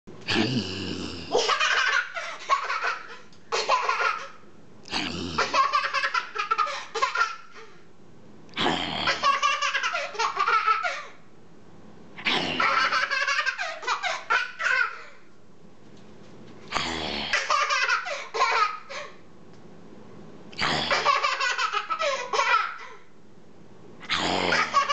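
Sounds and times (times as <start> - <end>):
person growling: 0.3 - 1.4, 4.9 - 5.6, 8.6 - 9.2, 12.2 - 12.8, 16.7 - 17.4, 20.6 - 21.0, 24.0 - 24.8
toddler laughing: 1.3 - 4.4, 5.4 - 7.7, 9.1 - 11.1, 12.6 - 15.2, 17.4 - 19.1, 20.9 - 23.0, 24.5 - 24.9.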